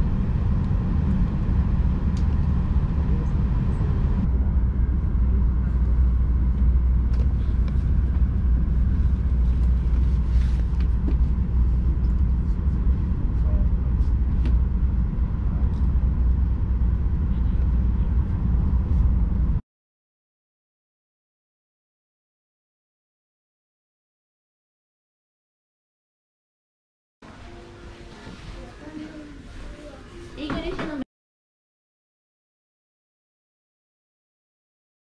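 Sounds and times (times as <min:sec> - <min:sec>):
train rumbling inside carriage: 0:00.0 - 0:19.6, 0:27.2 - 0:31.0.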